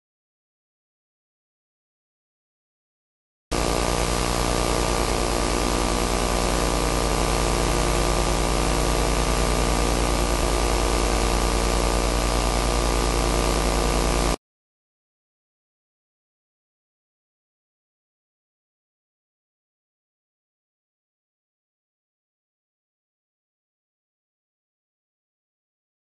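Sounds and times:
electrical hum and hiss: 0:03.5 - 0:14.4.

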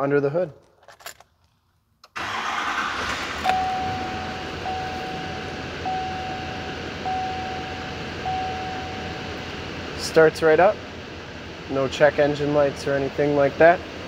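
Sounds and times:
diesel engine starting and idling: 0:02.1 - 0:14.0
dashboard warning chime: 0:03.4 - 0:09.4.

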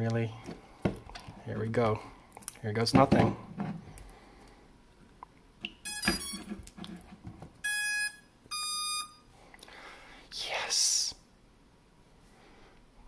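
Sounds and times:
clear electronic beeps: 0:05.8 - 0:06.4, 0:07.6 - 0:09.2.

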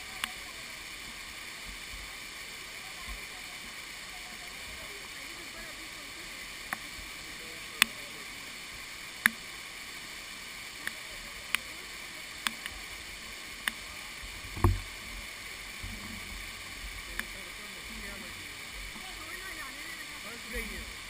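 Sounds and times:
waterfall pouring onto rocks: 0:00.0 - 0:21.0
dull thump: 0:14.6 - 0:14.9.

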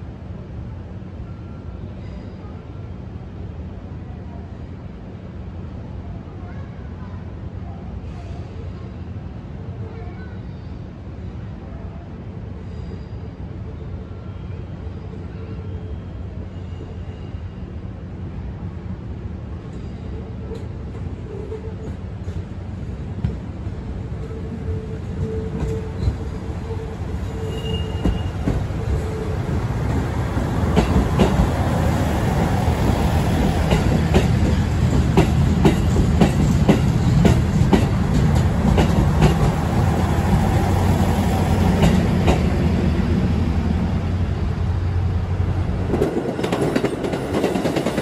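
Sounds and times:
diesel train rumble: 0:16.0 - 0:48.0
wheels clacking over rail joints: 0:30.6 - 0:31.6, 0:33.5 - 0:39.7.

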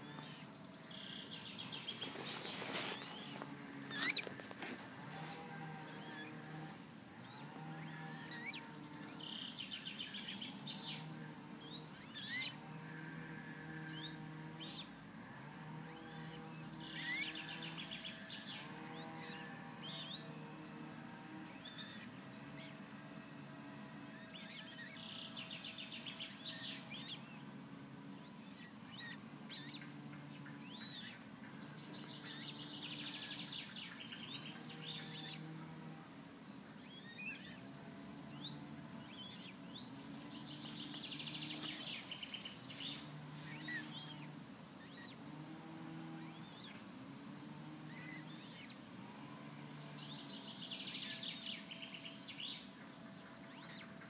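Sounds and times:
bird chirps and peeps: 0:00.0 - 0:04.4, 0:05.3 - 0:12.6, 0:28.3 - 0:35.9, 0:36.7 - 0:45.2
songbird singing: 0:00.0 - 0:54.0.

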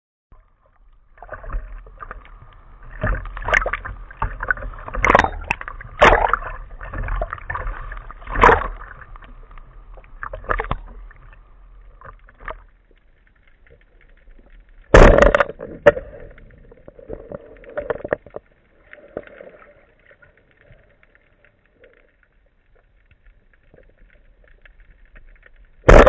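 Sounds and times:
waves splashing against camera: 0:01.1 - 0:12.7.

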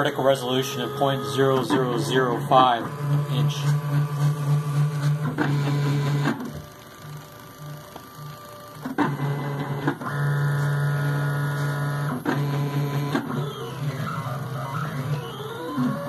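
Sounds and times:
stepper motors whining: 0:00.0 - 0:16.0.

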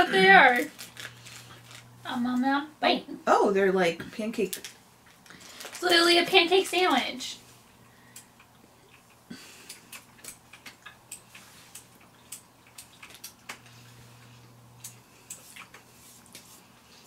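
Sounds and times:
people chewing: 0:00.0 - 0:02.0, 0:07.6 - 0:17.0
faint low hum: 0:00.0 - 0:17.0
snack wrapper crinkling: 0:00.4 - 0:02.0, 0:04.4 - 0:06.2, 0:09.7 - 0:13.7.

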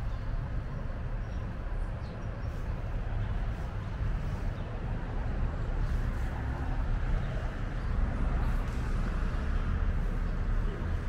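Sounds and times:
low rumble of road traffic: 0:00.0 - 0:11.0.

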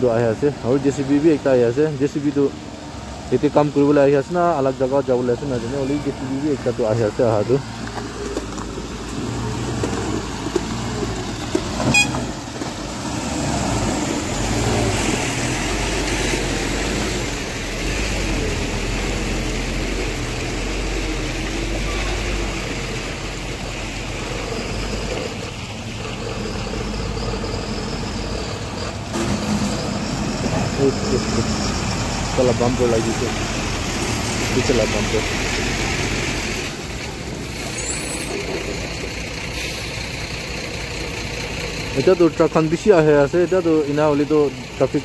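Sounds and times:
diesel trucks rumbling past: 0:00.0 - 0:45.0.

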